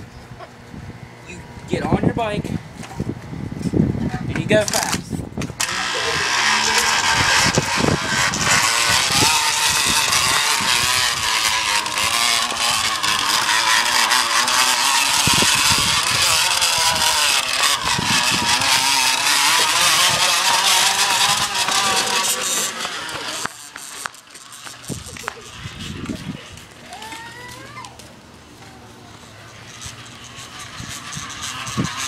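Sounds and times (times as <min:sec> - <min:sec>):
drink can rattling on spinning tyre: 0:04.5 - 0:27.2, 0:29.2 - 0:32.0.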